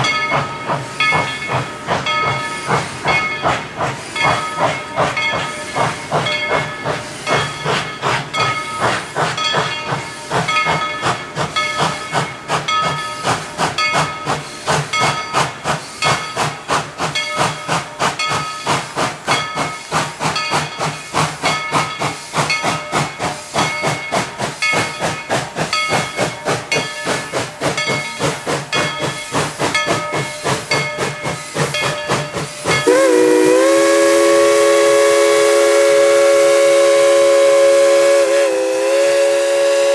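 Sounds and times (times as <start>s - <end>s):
hissing steam: 0.0s - 39.9s
steam locomotive chuffing: 0.0s - 39.9s
steam whistle: 32.8s - 39.9s.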